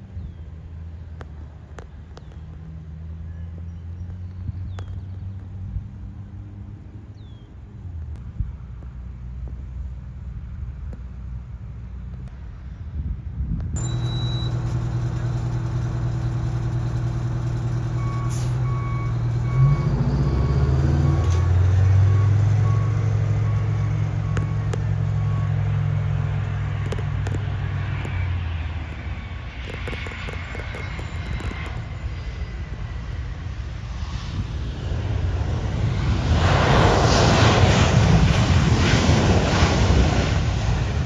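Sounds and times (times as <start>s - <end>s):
jet engines droning and whining: 9.5s - 41.0s
vehicle back-up beeper: 13.8s - 25.8s.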